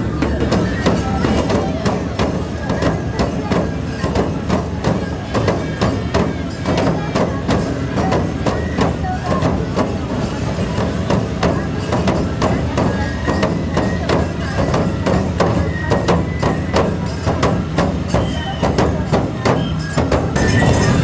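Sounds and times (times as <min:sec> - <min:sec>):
hand cymbals: 0:00.0 - 0:21.0
taiko drums: 0:00.0 - 0:21.0.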